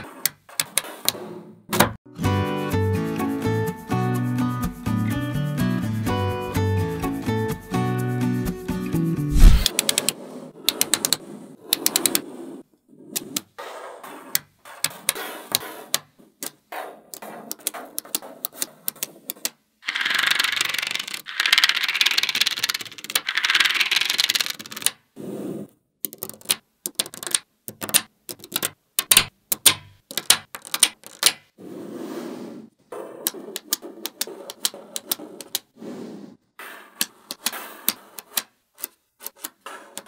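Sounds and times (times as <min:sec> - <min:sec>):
plastic card scraping over balls: 0:09.3 - 0:29.2, 0:30.0 - 0:40.0
magnetic balls clicking together: 0:09.4 - 0:12.2, 0:15.9 - 0:25.0, 0:26.0 - 0:31.5, 0:33.2 - 0:35.7, 0:37.0 - 0:40.0.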